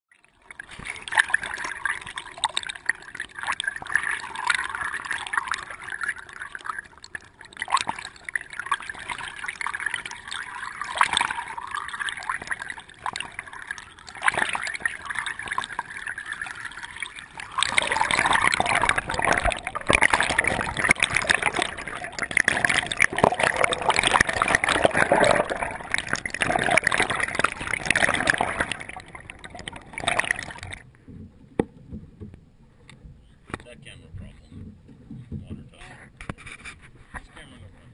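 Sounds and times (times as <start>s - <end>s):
water lapping and splashing: 0.1s - 37.9s
oars dipping in water: 0.2s - 37.5s.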